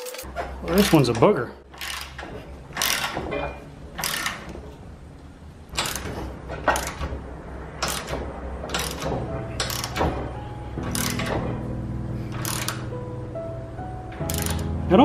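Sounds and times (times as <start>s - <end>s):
ratchet wrench clicking: 1.7s - 3.3s, 4.0s - 4.5s, 5.8s - 7.0s, 7.8s - 10.0s, 10.8s - 11.4s, 12.3s - 12.9s, 14.2s - 14.7s.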